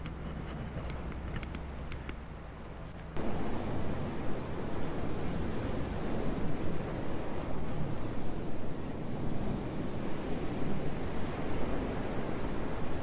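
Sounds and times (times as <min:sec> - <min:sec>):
wind buffeting microphone: 0:00.0 - 0:13.0
sea surf on rocky shore: 0:03.2 - 0:13.0.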